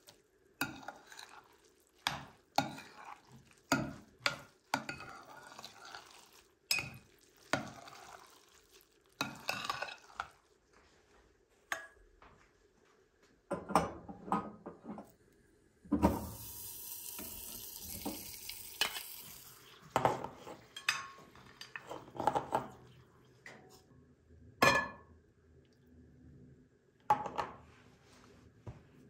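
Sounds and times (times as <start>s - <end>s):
butter sizzling in a pot: 0.0s - 10.4s, 16.1s - 21.8s
metal kitchenware clinking: 20.0s - 22.7s.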